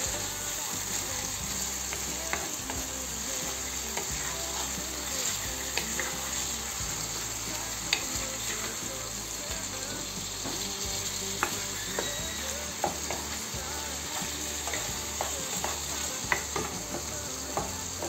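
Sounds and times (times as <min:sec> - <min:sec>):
chicken sizzling in oil: 0:00.0 - 0:18.0
spatula scraping and knocking pan: 0:09.9 - 0:18.0.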